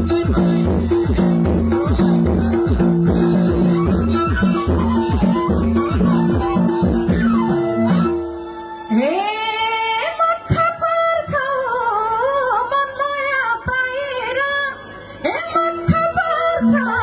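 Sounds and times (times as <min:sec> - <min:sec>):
band accompaniment: 0:00.0 - 0:09.0
woman singing into microphone: 0:08.6 - 0:17.0.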